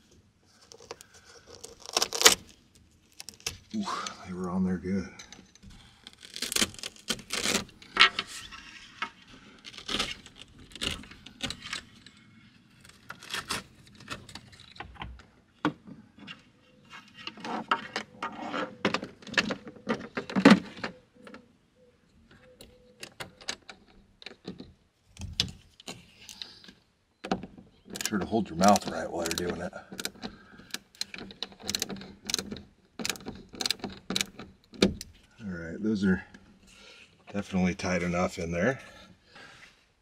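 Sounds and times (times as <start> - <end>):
metal brackets clicking and scraping: 22.3 - 35.2.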